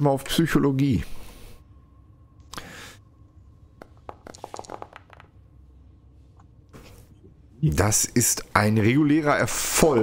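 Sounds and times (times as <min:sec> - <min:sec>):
dice clattering on tabletop: 0:03.8 - 0:05.3
dice rustling: 0:03.8 - 0:05.3.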